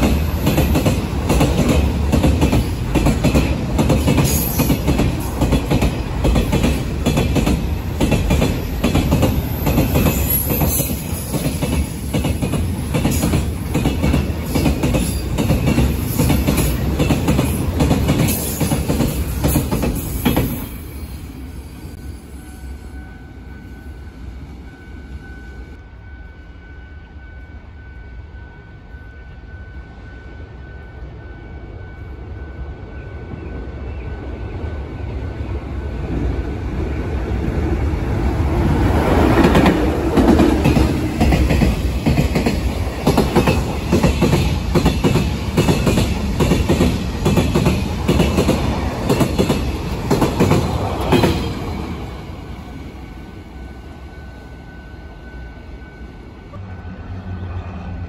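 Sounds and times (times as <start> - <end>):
train clacking over rail joints: 0.0 - 20.8, 38.6 - 53.0.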